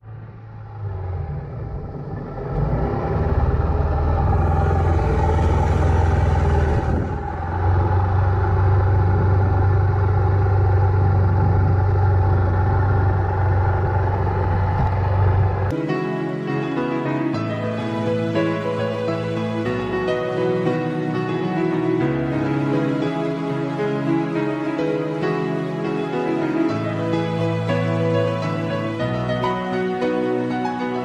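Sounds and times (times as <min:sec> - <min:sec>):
outboard motor droning: 0:00.1 - 0:15.7.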